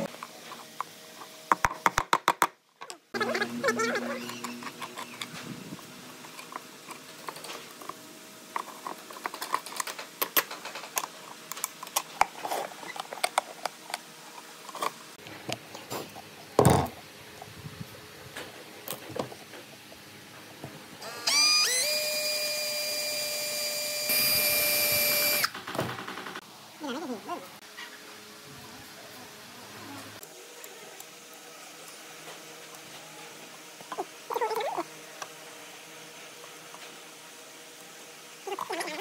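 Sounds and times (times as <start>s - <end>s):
power drill whining: 21.0s - 26.3s.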